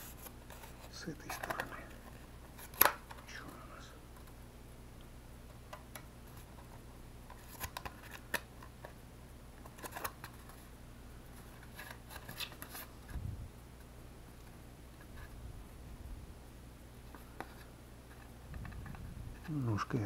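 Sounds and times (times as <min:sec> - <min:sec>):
clicks and scrapes handling cardboard: 0:00.0 - 0:03.3, 0:11.4 - 0:12.9.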